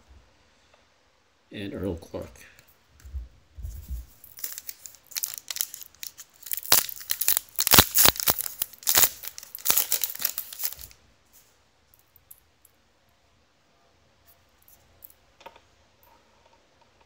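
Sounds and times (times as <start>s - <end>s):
plastic wrapper crinkling and tearing: 4.2s - 11.0s.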